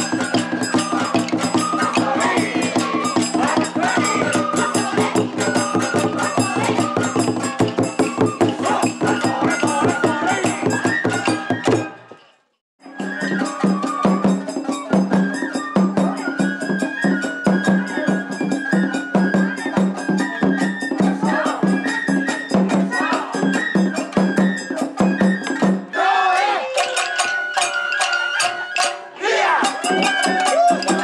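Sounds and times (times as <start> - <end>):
bell or clapper strikes: 0.0 - 11.4, 26.7 - 31.0
taiko drum beating: 0.0 - 11.8
high flute melody: 0.0 - 12.1, 12.8 - 31.0
person singing: 1.3 - 10.8, 29.2 - 31.0
shamisen playing: 26.6 - 31.0.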